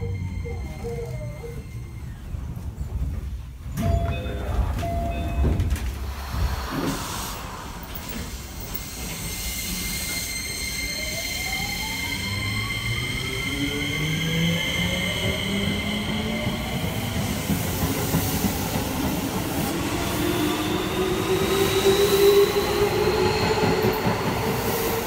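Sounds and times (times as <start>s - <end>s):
door chime: 3.8s - 5.9s
train inverter whine rising: 5.6s - 18.1s.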